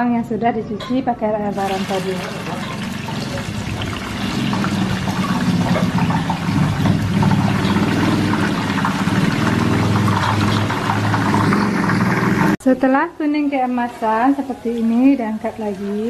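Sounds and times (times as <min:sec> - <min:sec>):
garlic sizzling in hot oil: 0:01.5 - 0:12.6.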